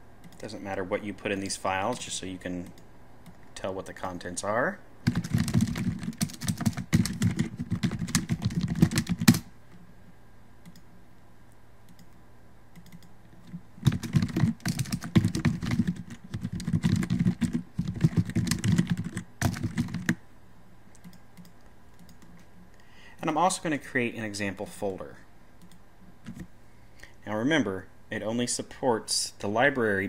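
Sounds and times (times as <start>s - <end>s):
typing on computer keyboard: 5.1s - 9.5s, 12.8s - 20.2s.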